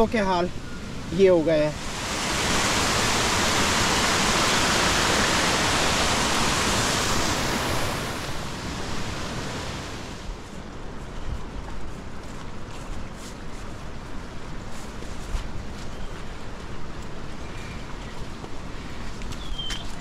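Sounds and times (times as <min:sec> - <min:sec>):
water rushing over rocks: 0:01.0 - 0:10.4.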